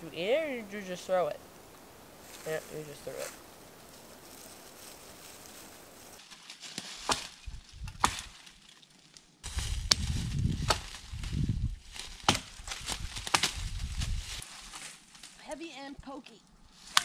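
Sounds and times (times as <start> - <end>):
crunching through dry leaves: 2.2 - 15.5
dry branches cracking and snapping: 4.2 - 15.6, 16.8 - 17.0.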